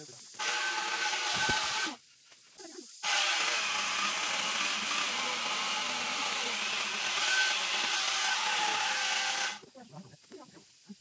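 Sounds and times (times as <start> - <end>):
power saw cutting wood: 0.4 - 2.0, 3.0 - 9.6.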